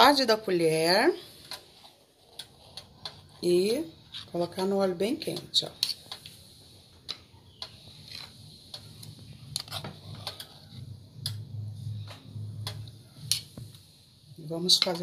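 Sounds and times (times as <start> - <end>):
batter scraped into oil: 7.6 - 11.0.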